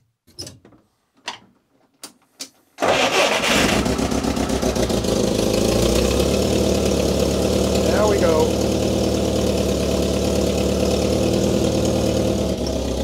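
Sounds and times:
car engine starting and idling: 2.8 - 13.0.

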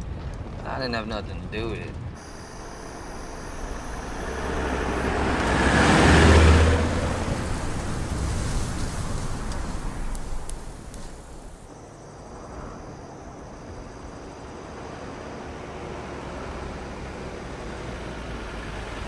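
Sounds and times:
tyres rushing on dirt: 2.1 - 11.7
car engine hum: 2.2 - 11.7.

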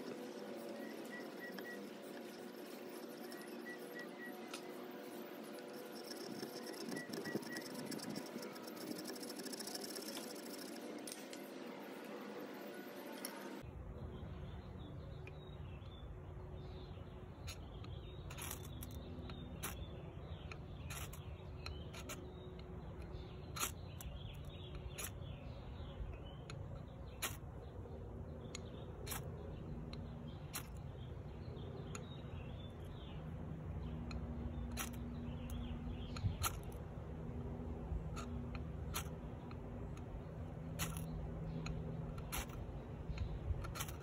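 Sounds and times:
knife scraping ferrocerium rod: 0.0 - 11.5.

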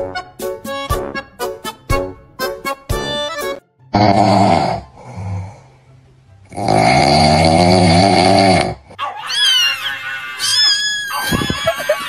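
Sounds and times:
loud snoring: 3.9 - 5.7, 6.5 - 9.0
quiet breath: 4.9 - 6.0.

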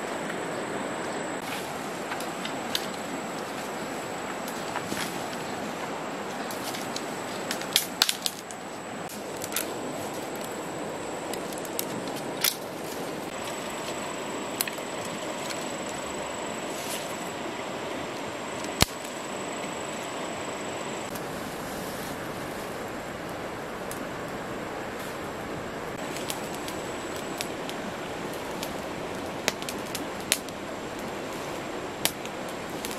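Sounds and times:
stream rushing: 0.0 - 32.9
dry sticks snapping: 6.5 - 10.6, 11.3 - 12.7, 14.5 - 16.0, 18.6 - 19.2, 26.0 - 27.8, 29.5 - 31.1, 32.0 - 32.9.

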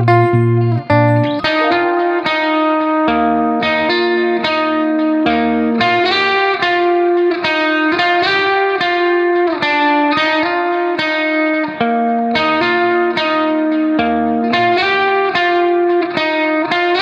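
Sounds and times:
held low note: 0.0 - 2.0
plucked string melody: 0.0 - 9.4.

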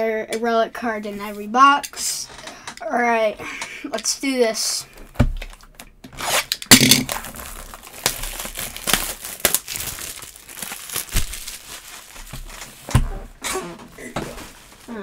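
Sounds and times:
shrink wrap crinkling and tearing: 5.5 - 13.0.

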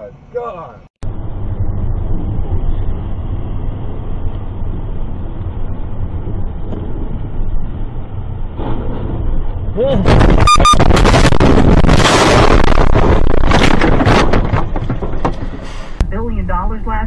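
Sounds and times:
road and engine noise in car: 0.0 - 10.0.

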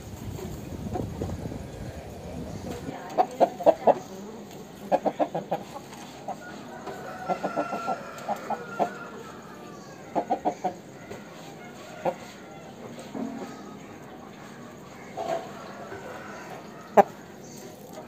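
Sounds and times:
rooster clucking: 4.8 - 12.8, 15.1 - 17.3.

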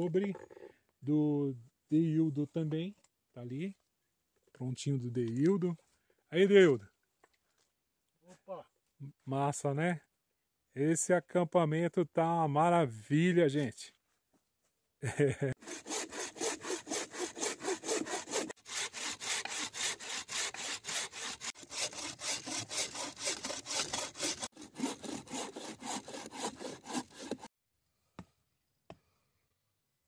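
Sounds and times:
saw cutting through log: 15.5 - 27.5.

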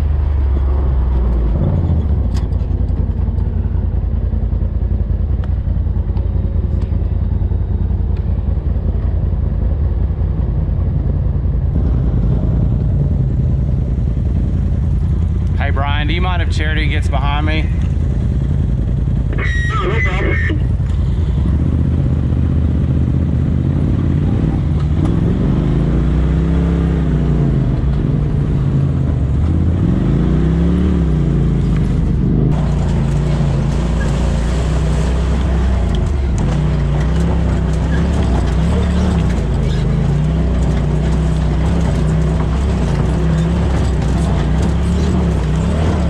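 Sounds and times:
vehicle engine revving: 11.7 - 46.0.

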